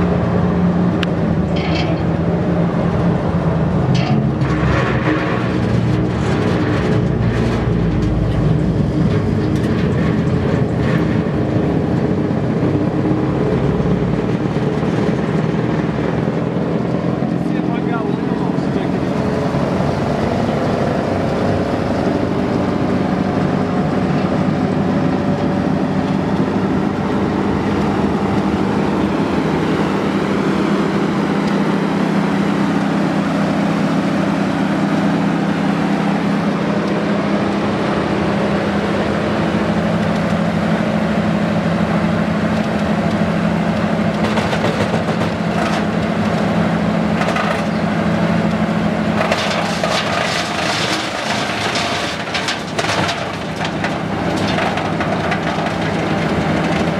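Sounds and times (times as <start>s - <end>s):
wood chipper engine running: 0.0s - 56.9s.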